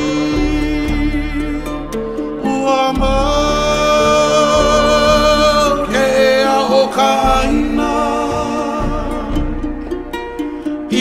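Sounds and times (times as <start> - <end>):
instrumental accompaniment: 0.0 - 11.0
person singing long gliding notes: 0.0 - 11.0.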